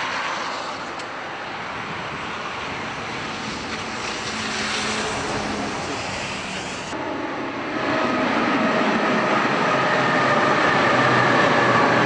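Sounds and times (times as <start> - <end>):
diesel locomotive running: 2.6 - 12.0.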